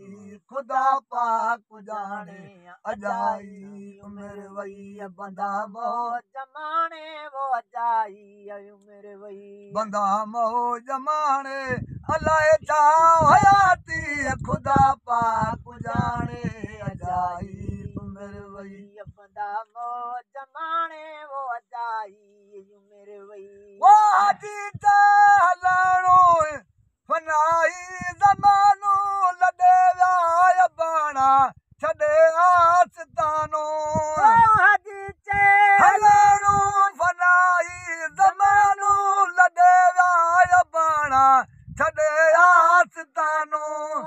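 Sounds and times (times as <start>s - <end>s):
man singing unaccompanied: 0.0s - 44.0s
low rhythmic thumping: 11.7s - 19.3s, 32.0s - 39.2s.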